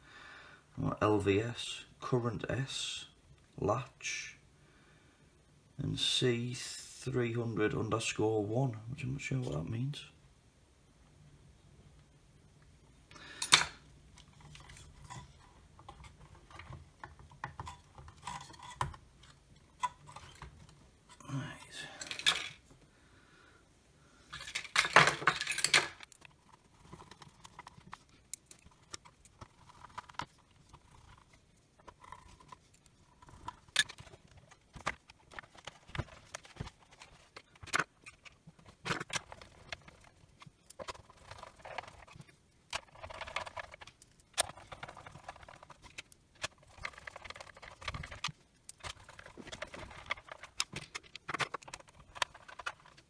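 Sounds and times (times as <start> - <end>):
plastic case clicks and rattles: 31.8 - 53.0.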